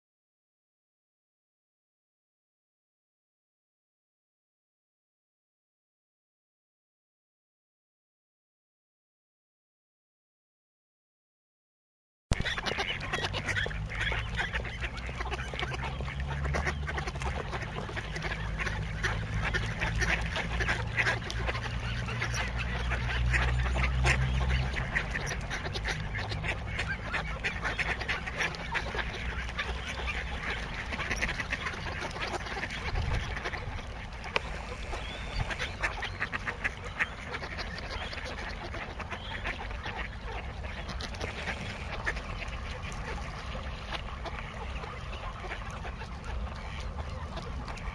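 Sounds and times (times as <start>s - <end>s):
ducks quacking: 12.3s - 47.9s.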